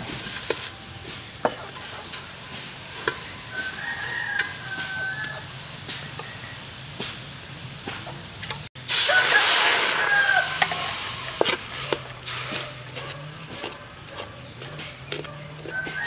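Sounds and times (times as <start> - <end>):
metal spoon scraping a wok: 0.0 - 6.7, 8.5 - 16.0
liquid hissing on hot wok: 0.0 - 13.0.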